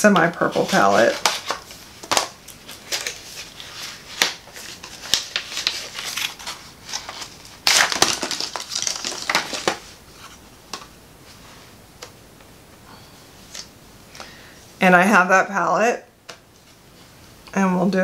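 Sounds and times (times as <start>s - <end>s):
packaging crinkling and rustling: 0.3s - 10.9s.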